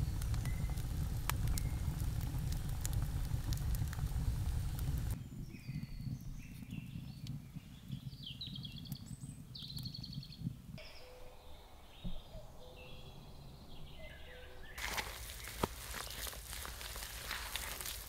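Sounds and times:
wood fire crackling: 0.0s - 10.8s, 14.7s - 18.0s
birds chirping and whistling: 5.1s - 18.0s.

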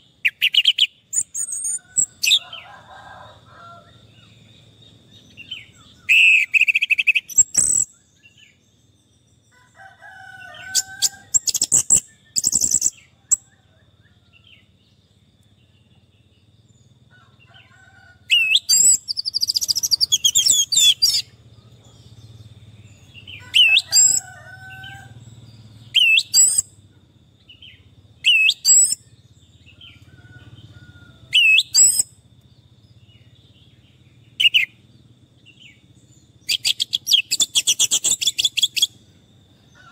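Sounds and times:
thrush singing whistled notes: 0.0s - 2.6s, 5.1s - 8.9s, 10.6s - 13.6s, 18.3s - 21.5s, 22.1s - 26.8s, 27.5s - 32.3s, 36.4s - 39.0s.

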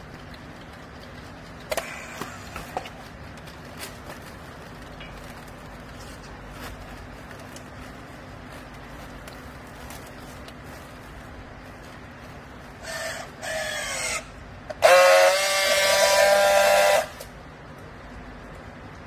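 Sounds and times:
sharp clicks and knocks: 0.0s - 6.0s.

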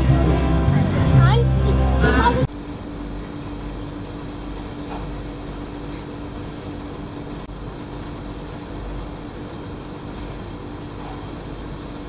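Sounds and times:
mechanical drone: 0.0s - 5.0s.

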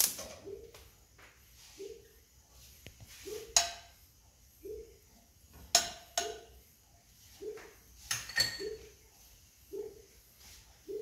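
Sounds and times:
metal utensil clinking on pot: 8.1s - 8.8s.

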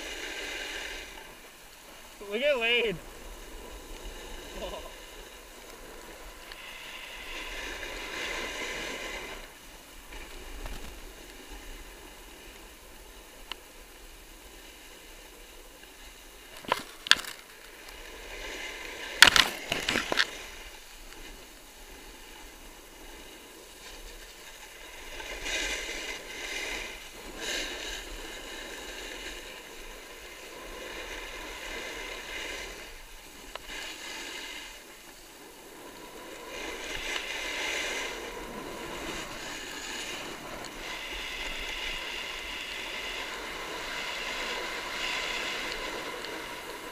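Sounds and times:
snowboard scraping over snow: 0.0s - 46.9s.

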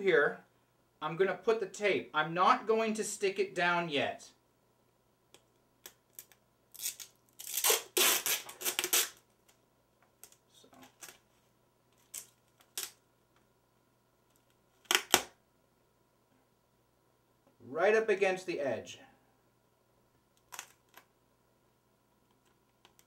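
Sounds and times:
packing tape ripping off roll: 5.8s - 9.3s, 12.0s - 13.0s, 14.8s - 15.4s, 20.4s - 21.0s.

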